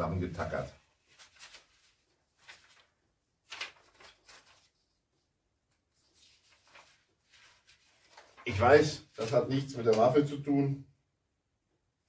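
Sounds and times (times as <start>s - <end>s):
paper rustling: 0.3s - 10.2s.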